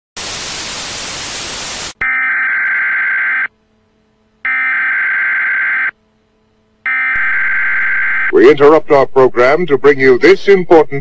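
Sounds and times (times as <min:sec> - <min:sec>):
television static hiss: 0:00.2 - 0:02.0, 0:05.6 - 0:11.0
harsh buzzing alert beep: 0:06.9 - 0:08.3.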